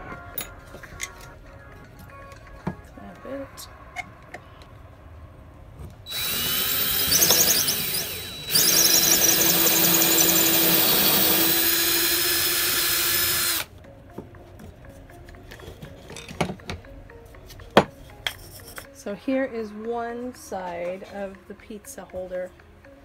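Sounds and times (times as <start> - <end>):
cordless drill boring wood: 6.1 - 13.7.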